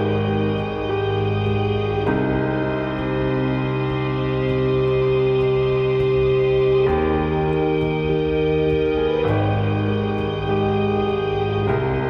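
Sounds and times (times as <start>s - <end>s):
sustained music chord: 0.0s - 12.0s.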